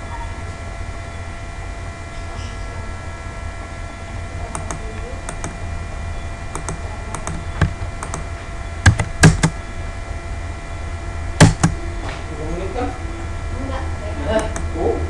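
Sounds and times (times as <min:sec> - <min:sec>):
steady electrical hum: 0:00.0 - 0:15.0
computer mouse clicking: 0:04.5 - 0:05.6, 0:06.5 - 0:08.3, 0:08.9 - 0:09.6, 0:11.4 - 0:11.8, 0:14.4 - 0:14.7
keyboard keystrokes: 0:04.5 - 0:05.6, 0:06.6 - 0:09.6, 0:11.4 - 0:11.8, 0:14.4 - 0:14.7.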